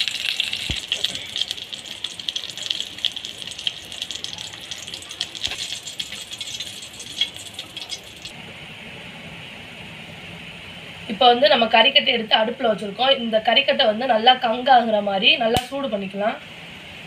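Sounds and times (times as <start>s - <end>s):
chicken frying in hot oil: 0.0s - 8.3s
metal spatula turning food: 0.0s - 8.3s.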